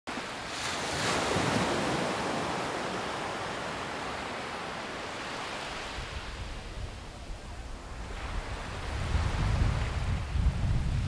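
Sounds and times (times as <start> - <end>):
ocean waves breaking: 0.1 - 10.4
wind: 0.1 - 11.0.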